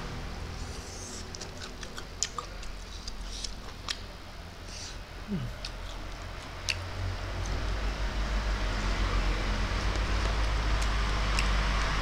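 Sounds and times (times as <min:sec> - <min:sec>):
steady low hum: 0:00.0 - 0:12.0
man chewing food: 0:00.6 - 0:04.1, 0:05.3 - 0:07.8, 0:09.7 - 0:12.0.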